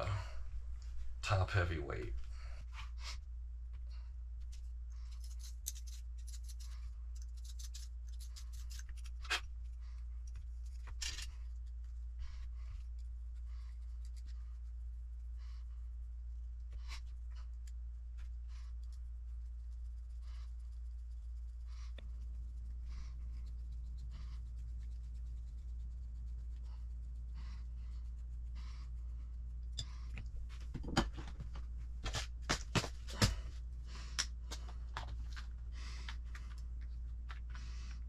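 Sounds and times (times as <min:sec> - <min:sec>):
small parts scraping: 0:04.5 - 0:09.5, 0:10.3 - 0:11.8.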